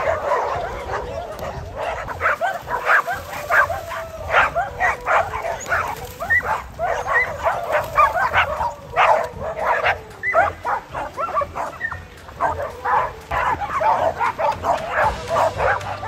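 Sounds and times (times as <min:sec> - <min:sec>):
dogs barking and yipping: 0:00.0 - 0:16.0
high rising dog yelps: 0:00.0 - 0:16.0.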